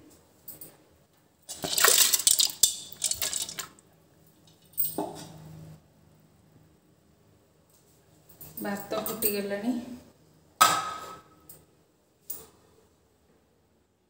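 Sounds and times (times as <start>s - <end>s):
lentils splashing into water: 1.5s - 3.8s.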